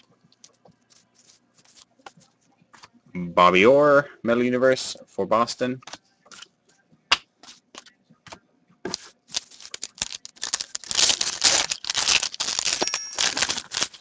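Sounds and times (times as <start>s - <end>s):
foil wrapper crinkling and tearing: 8.9s - 14.0s.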